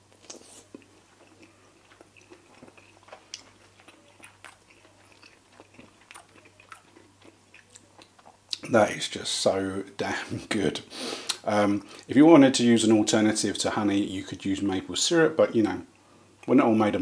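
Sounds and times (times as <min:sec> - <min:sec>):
person chewing: 0:00.0 - 0:08.7
wet mouth clicks and crunches: 0:00.1 - 0:08.6.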